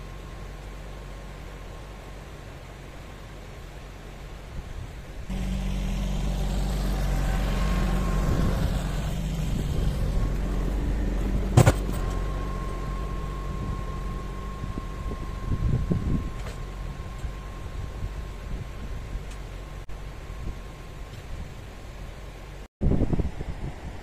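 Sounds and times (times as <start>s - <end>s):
tractor diesel engine running: 5.3s - 21.8s.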